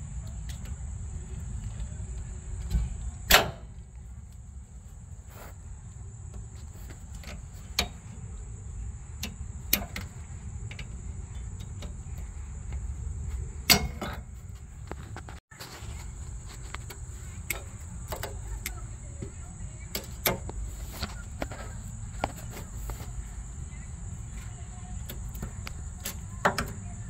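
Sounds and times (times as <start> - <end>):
steady high-pitched whine: 0.0 - 27.0
sharp clicks and knocks: 9.2 - 27.0.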